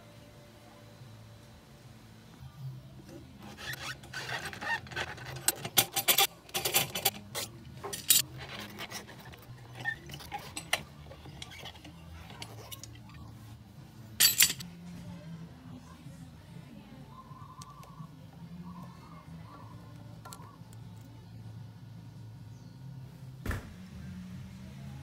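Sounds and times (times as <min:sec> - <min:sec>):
screw threads scraping: 0:03.4 - 0:13.2
metal clatter: 0:04.0 - 0:13.1, 0:14.2 - 0:14.6
metal clinks: 0:05.4 - 0:08.3, 0:14.2 - 0:14.6.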